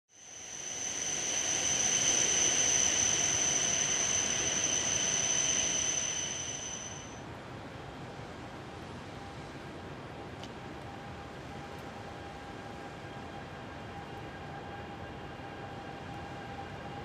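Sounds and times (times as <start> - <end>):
train rushing past: 0.1 - 7.2
high-pitched train whine: 0.1 - 7.4, 8.2 - 17.0.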